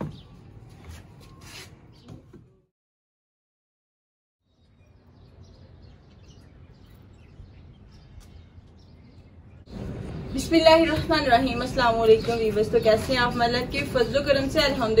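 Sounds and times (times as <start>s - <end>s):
bird chirps: 4.4s - 13.4s
faint outdoor ambience: 4.4s - 15.0s.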